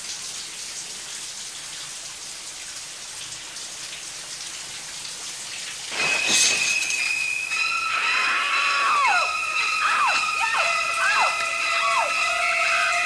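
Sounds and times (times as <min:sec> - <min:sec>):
shower spray hissing: 0:05.8 - 0:13.0
shower curtain torn open: 0:05.9 - 0:08.8
screeching violins: 0:06.3 - 0:13.0
woman screaming: 0:07.6 - 0:13.0.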